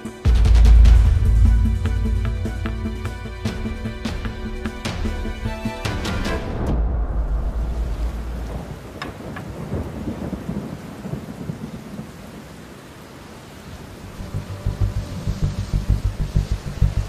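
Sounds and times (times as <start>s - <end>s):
steady rain: 0.0s - 17.0s
deep thunder rumble: 6.6s - 12.2s.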